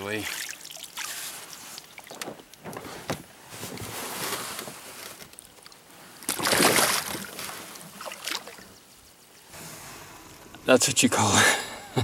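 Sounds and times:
fish splashing in water: 5.6s - 8.7s.

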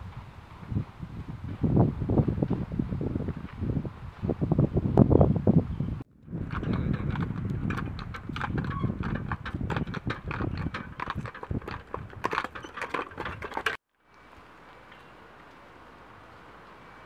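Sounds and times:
hooves clip-clopping on pavement: 6.2s - 15.7s
faint steady hiss: 14.0s - 17.0s.

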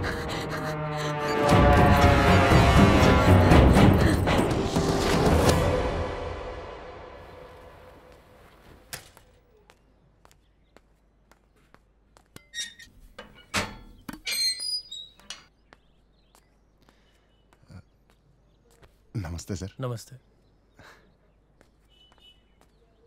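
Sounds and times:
music: 1.3s - 7.5s
gate hinge squeaks: 12.4s - 15.5s.

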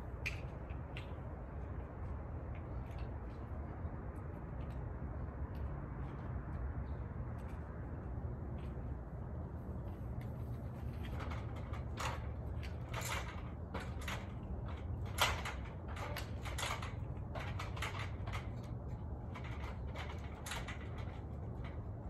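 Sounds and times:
metal ladder clanking and creaking: 10.6s - 22.0s.

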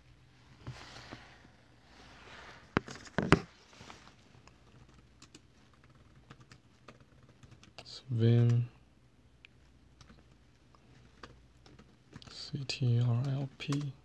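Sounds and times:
laptop keyboard typing: 4.6s - 8.6s, 10.0s - 10.4s, 11.0s - 12.4s, 13.0s - 14.0s.

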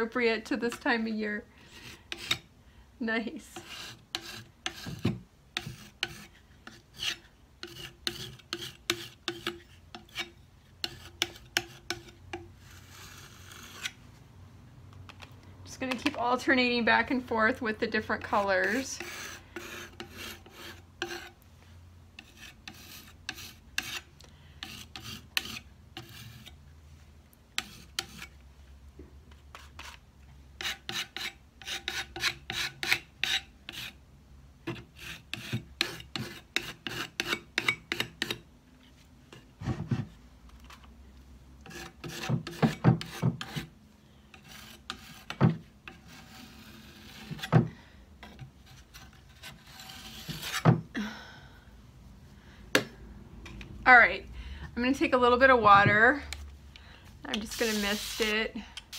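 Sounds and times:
putty knife scraping paint on wood: 1.7s - 2.5s, 3.6s - 14.0s, 18.1s - 21.4s, 22.2s - 26.6s, 27.6s - 28.4s, 29.4s - 30.0s, 30.6s - 34.0s, 34.7s - 38.4s, 41.6s - 43.7s, 44.3s - 50.8s, 57.3s - 58.9s.

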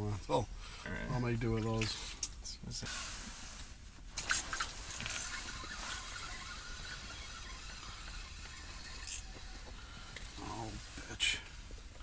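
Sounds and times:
fishing tackle rustling: 3.2s - 7.7s
fishing reel clicks: 4.2s - 9.5s.

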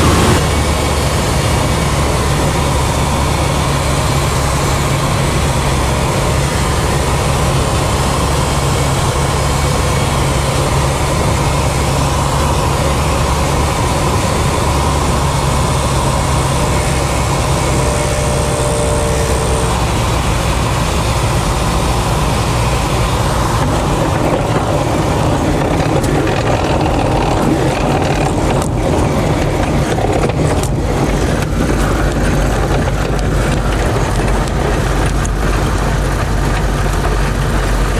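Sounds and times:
aircraft engine and propeller: 0.0s - 37.9s
wheels knocking on grass: 23.4s - 37.9s.

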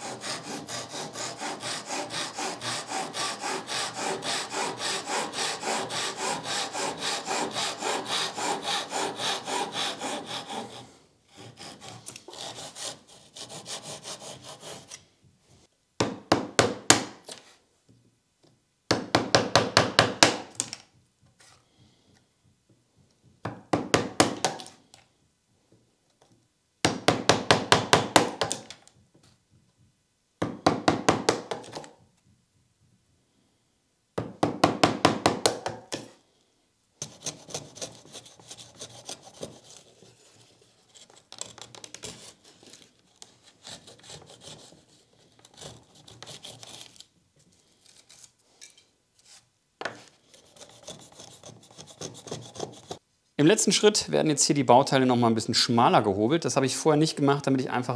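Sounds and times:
rapid hand tool strokes on wood: 0.0s - 15.0s, 37.0s - 40.0s, 43.4s - 46.8s.

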